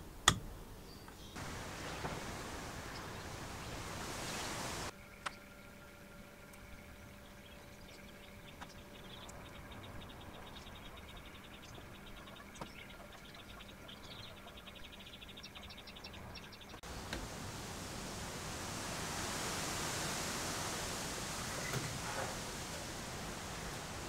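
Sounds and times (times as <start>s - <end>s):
low steady hum: 0.0s - 24.0s
rushing hiss: 1.4s - 4.9s, 16.8s - 24.0s.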